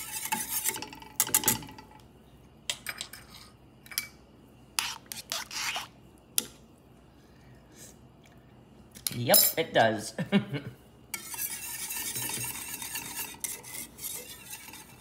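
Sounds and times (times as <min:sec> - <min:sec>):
whisk scraping metal saucepan: 0:00.0 - 0:01.4, 0:04.8 - 0:06.0, 0:11.1 - 0:15.0.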